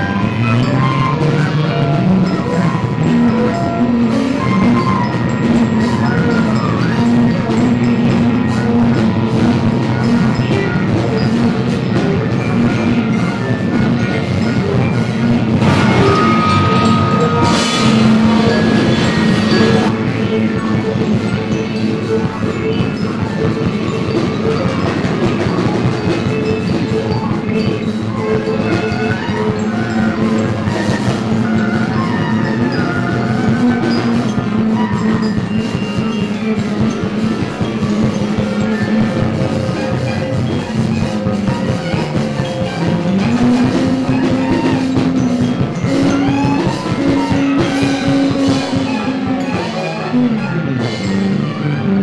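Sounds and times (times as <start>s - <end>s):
experimental ensemble music: 0.0s - 52.0s
sustained low note: 15.6s - 19.9s.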